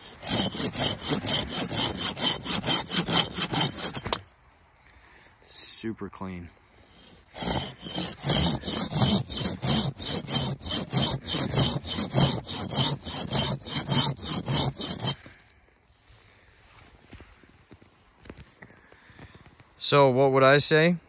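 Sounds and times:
hand saw cutting wood: 0:00.0 - 0:04.3, 0:06.9 - 0:15.5.

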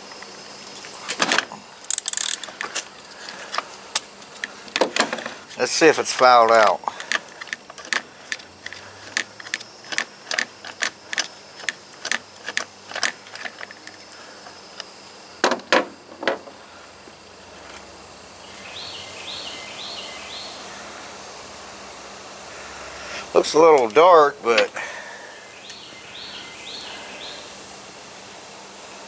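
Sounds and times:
wrench clicking: 0:01.9 - 0:02.5, 0:07.1 - 0:14.0.

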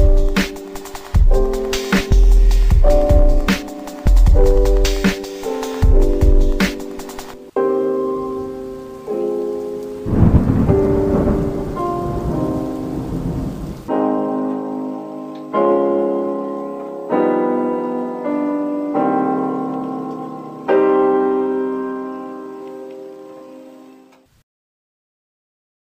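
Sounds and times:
rain noise: 0:00.0 - 0:17.2
piano chords: 0:00.0 - 0:24.2
thunder rumble: 0:10.0 - 0:13.9.

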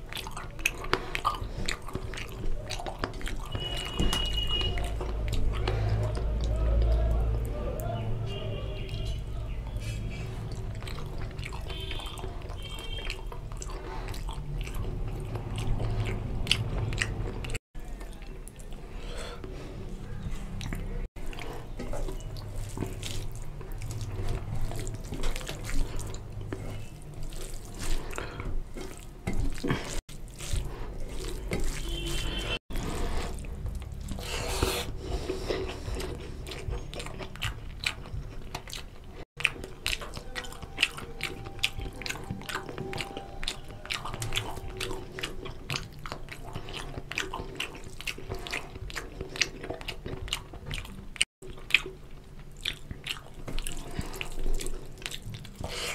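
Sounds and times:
wet chewing and lip smacks: 0:00.0 - 0:08.0, 0:08.8 - 0:18.8, 0:20.2 - 0:55.9
fingers squishing curry into rice: 0:20.0 - 0:55.9.

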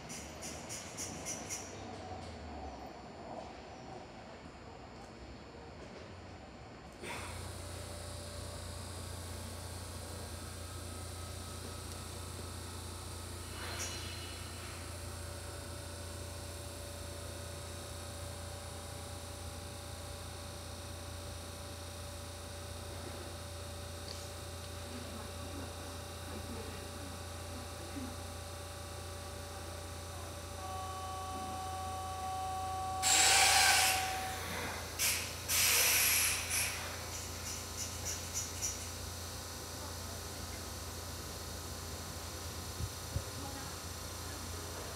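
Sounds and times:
loud hissing bursts: 0:33.0 - 0:38.8.

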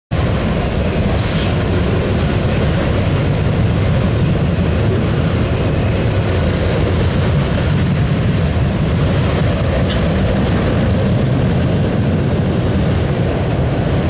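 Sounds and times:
train rumbling past: 0:00.1 - 0:14.0
brief hiss: 0:01.2 - 0:01.6.

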